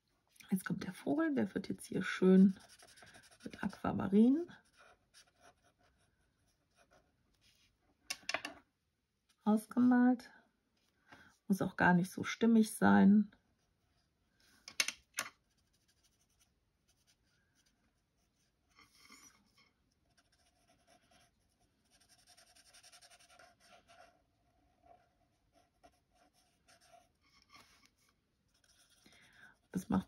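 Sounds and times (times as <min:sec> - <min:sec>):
marker scratching on card: 0:02.4 - 0:03.8, 0:20.1 - 0:24.1.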